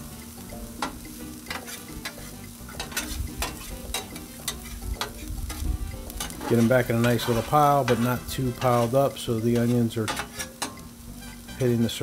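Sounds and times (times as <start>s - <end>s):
potatoes and onions sizzling on griddle: 0.0s - 12.0s
metal spatulas scraping: 1.5s - 5.6s, 6.2s - 11.6s.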